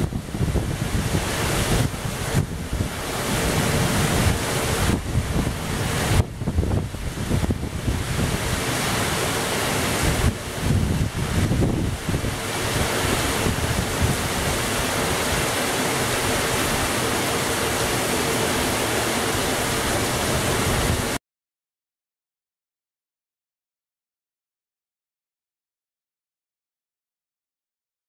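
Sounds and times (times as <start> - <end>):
heavy rain pouring: 0.0 - 21.2
wind buffeting microphone: 0.0 - 21.2.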